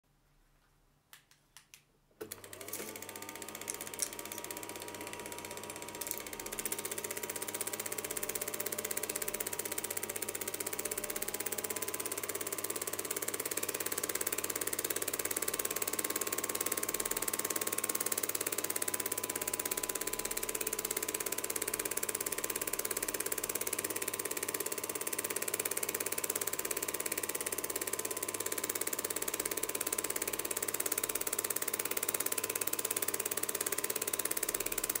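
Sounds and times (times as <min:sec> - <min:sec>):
projector clicks: 0:01.2 - 0:07.2
motor whir and hum: 0:02.2 - 0:09.0
film projector clatter: 0:02.2 - 0:35.0.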